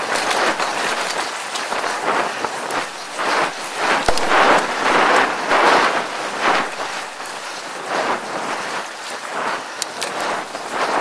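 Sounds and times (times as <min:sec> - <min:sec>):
grit ticking: 0:00.0 - 0:07.6
bike tyres rolling on dirt: 0:00.0 - 0:11.0
wind on microphone: 0:00.0 - 0:11.0.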